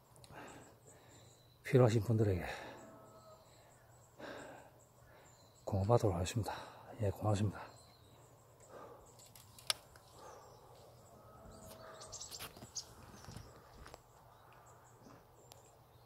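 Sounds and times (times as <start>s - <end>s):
high bird chirps: 11.5s - 13.7s.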